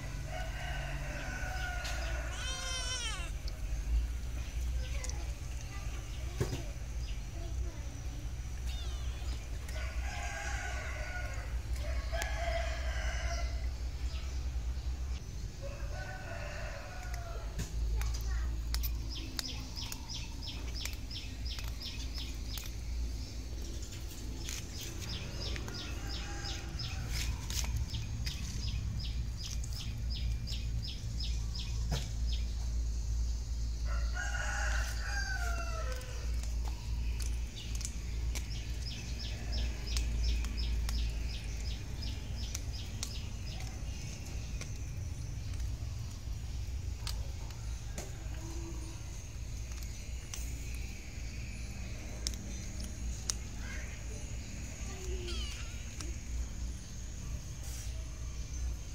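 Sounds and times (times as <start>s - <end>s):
rooster crowing: 0.0s - 3.3s, 9.7s - 13.7s, 15.6s - 17.5s, 25.4s - 27.4s, 33.9s - 36.2s
steady low rumble: 16.7s - 33.9s.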